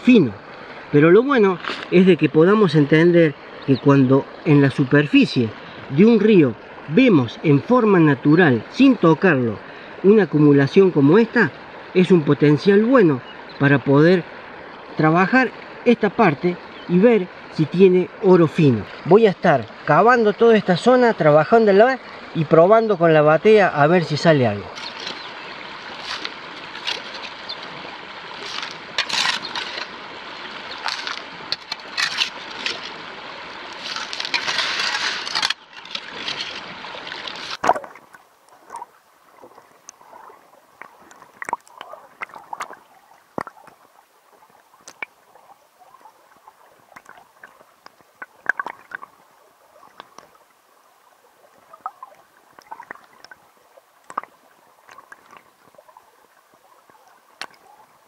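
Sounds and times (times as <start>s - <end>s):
water sloshing in a pan: 24.6s - 38.0s
gravel clicking: 24.7s - 30.0s, 30.6s - 33.1s, 33.7s - 38.8s
loud rough scraping and rushing: 28.4s - 30.0s, 33.7s - 37.6s.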